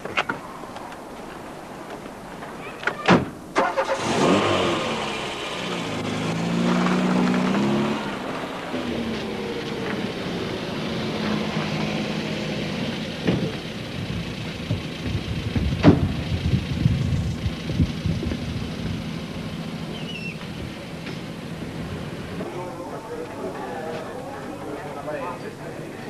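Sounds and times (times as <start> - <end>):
car engine revving: 3.6 - 22.7
car door shutting: 15.8 - 16.2.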